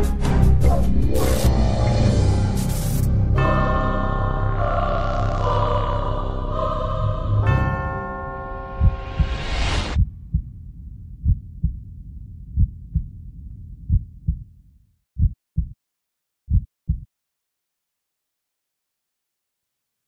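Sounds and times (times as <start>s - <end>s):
song: 0.4s - 9.5s
heartbeat thumps: 8.8s - 14.6s, 15.2s - 15.8s, 16.5s - 17.1s.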